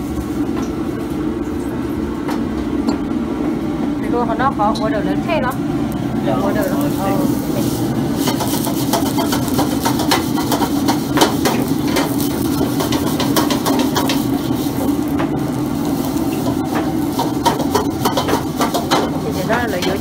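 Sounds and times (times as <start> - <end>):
wok range running: 0.0 - 20.0
wok being scrubbed: 6.3 - 20.0.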